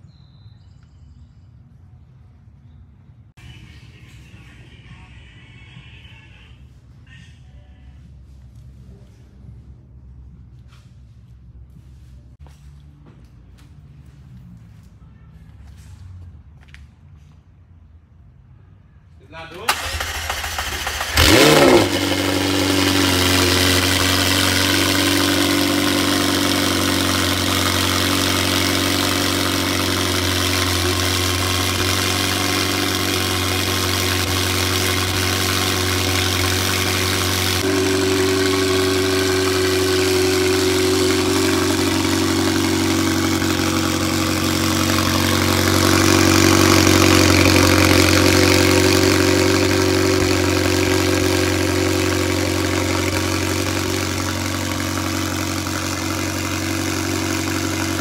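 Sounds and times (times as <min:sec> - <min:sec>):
car engine revving and idling: 0:19.7 - 0:58.0.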